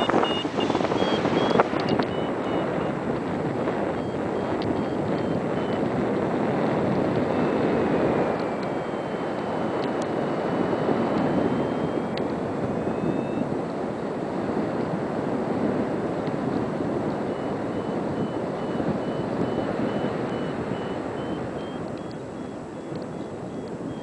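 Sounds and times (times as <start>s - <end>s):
faint high beeping: 0.0s - 3.0s, 3.9s - 5.8s, 8.3s - 9.7s, 10.7s - 12.2s, 12.8s - 13.5s, 17.3s - 24.0s
wind noise on microphone: 0.0s - 24.0s.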